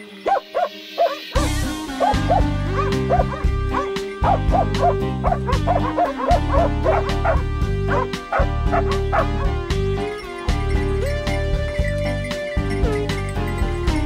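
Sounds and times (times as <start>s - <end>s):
dogs baying in rapid yelps: 0.2s - 9.7s, 11.2s - 13.3s
loud background music: 0.3s - 14.0s.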